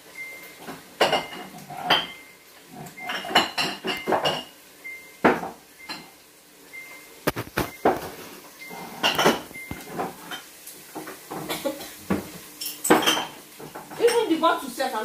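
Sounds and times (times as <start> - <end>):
containers clinking: 7.2 - 14.4.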